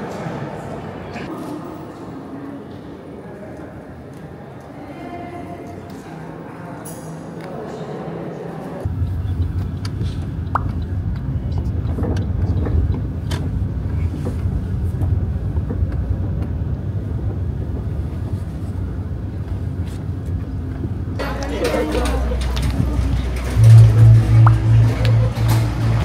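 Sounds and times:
engine and road rumble: 0:08.8 - 0:26.0.

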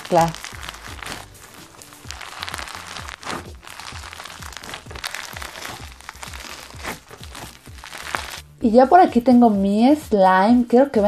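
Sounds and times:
foam bead slime crackling: 0:00.0 - 0:08.5.

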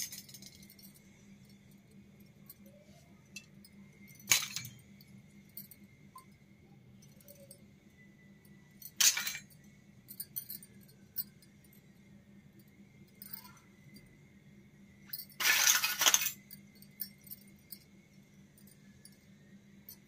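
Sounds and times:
faint steady hum: 0:00.0 - 0:20.0
metal utensils clinking: 0:03.4 - 0:04.9, 0:08.8 - 0:09.6, 0:15.2 - 0:16.5.

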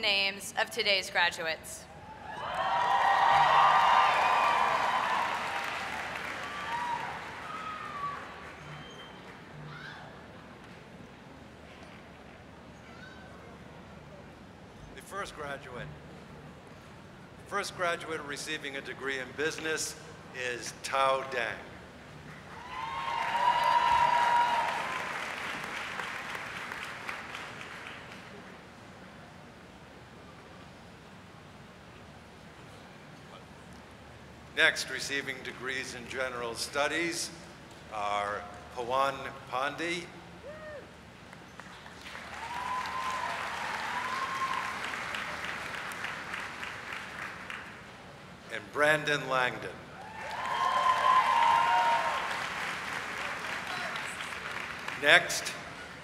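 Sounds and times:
long high cheer: 0:02.0 - 0:08.7, 0:22.4 - 0:26.9, 0:40.4 - 0:41.0, 0:42.0 - 0:46.1, 0:49.9 - 0:54.6
audience applauding: 0:02.3 - 0:09.4, 0:22.5 - 0:28.5, 0:41.6 - 0:47.9, 0:50.0 - 0:56.0
long held shout: 0:22.6 - 0:25.1, 0:40.4 - 0:40.9, 0:42.4 - 0:44.8, 0:50.0 - 0:52.4.

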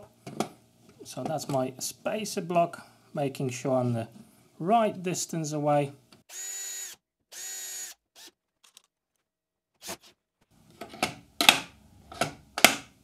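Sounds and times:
cordless drill running: 0:06.3 - 0:08.4.

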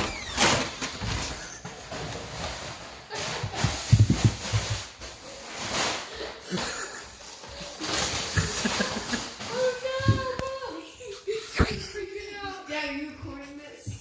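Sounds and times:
paper bag rustling on concrete: 0:00.6 - 0:11.5.

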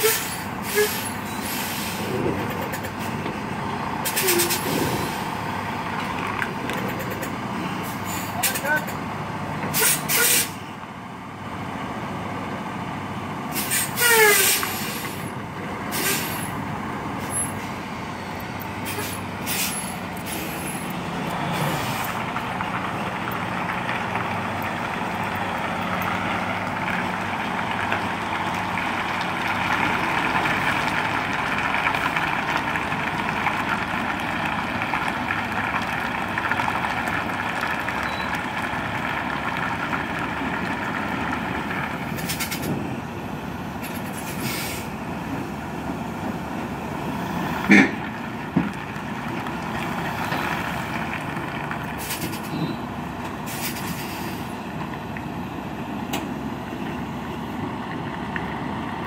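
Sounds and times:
air-brake hisses: 0:00.0 - 0:02.1, 0:09.8 - 0:10.6, 0:13.5 - 0:15.2, 0:18.8 - 0:20.8, 0:44.1 - 0:44.9
diesel truck engine running: 0:00.0 - 0:59.0.

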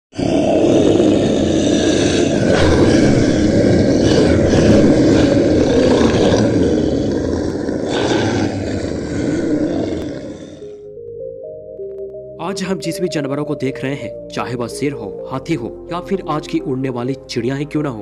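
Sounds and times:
creature roaring: 0:00.1 - 0:10.8.

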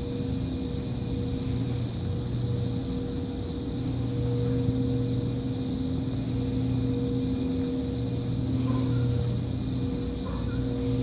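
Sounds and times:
machine hum: 0:00.0 - 0:11.0.

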